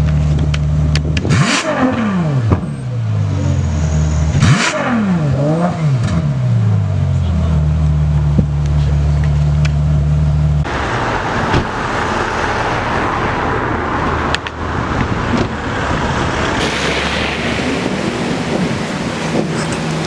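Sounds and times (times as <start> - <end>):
passing cars hissing: 10.6 - 20.0
car engine idling: 12.7 - 20.0.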